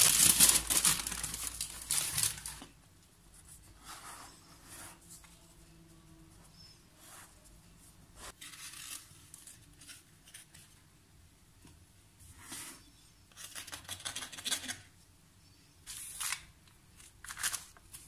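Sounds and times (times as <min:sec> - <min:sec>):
baking paper crinkling: 0:00.0 - 0:02.8.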